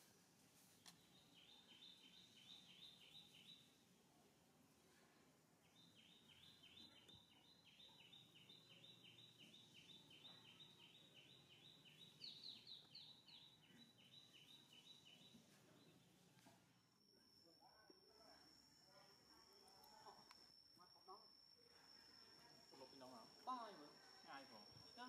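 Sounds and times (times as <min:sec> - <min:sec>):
small bird chirping: 0:00.7 - 0:03.8, 0:05.6 - 0:16.6.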